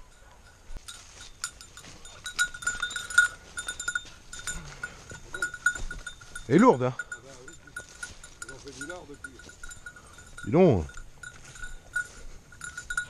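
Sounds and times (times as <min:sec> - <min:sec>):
dog bell jingling: 0:00.0 - 0:13.0
steps rustling in grass and leaves: 0:00.6 - 0:13.0.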